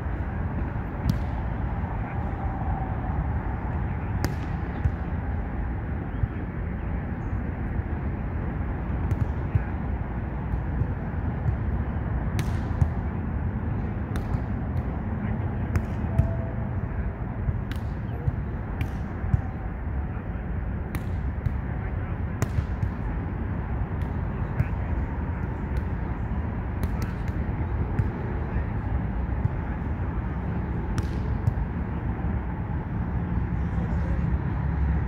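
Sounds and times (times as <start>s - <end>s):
steady low rumble: 0.0s - 35.0s
volleyball being hit: 1.0s - 1.4s, 12.3s - 13.0s, 14.1s - 14.9s, 30.9s - 31.8s.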